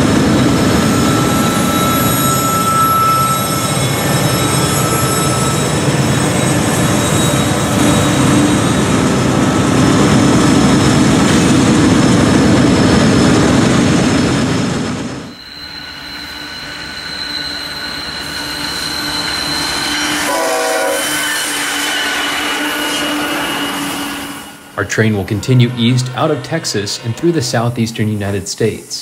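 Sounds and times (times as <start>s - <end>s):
engine drone with high whine: 0.0s - 21.1s, 23.4s - 29.0s
model train engine and wheels: 0.0s - 29.0s
train horn blast: 20.2s - 28.4s.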